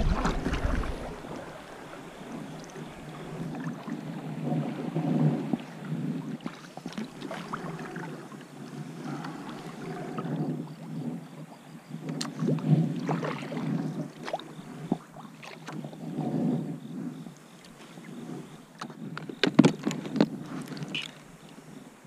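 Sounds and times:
paddle splashing in water: 0.0s - 10.5s, 12.1s - 15.9s.

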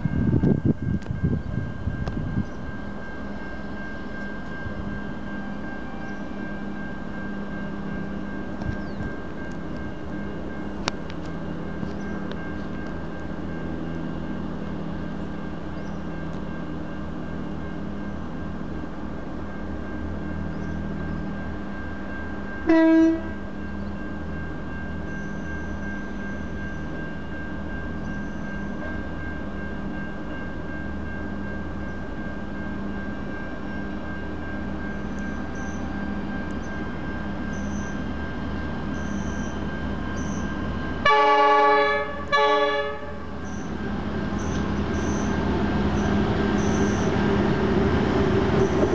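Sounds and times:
locomotive horn blasts: 22.7s - 23.4s, 41.0s - 43.4s.

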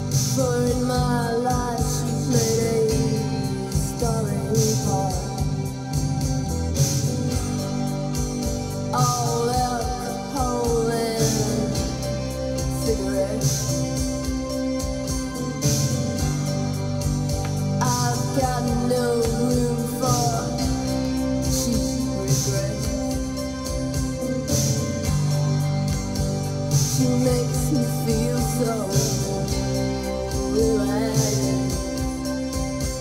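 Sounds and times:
woman singing: 0.0s - 5.7s, 8.9s - 14.4s, 17.8s - 23.4s, 26.9s - 32.4s
guitar: 0.0s - 33.0s.

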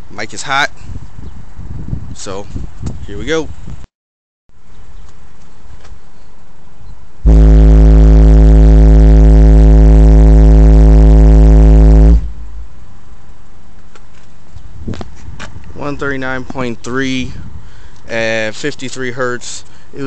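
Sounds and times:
subwoofer test tone: 7.3s - 12.8s.

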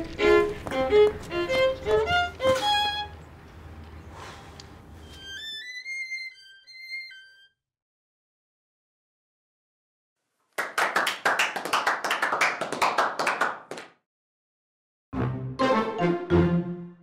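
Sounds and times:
hands clapping: 10.6s - 14.0s
short piece of music: 15.2s - 17.0s.

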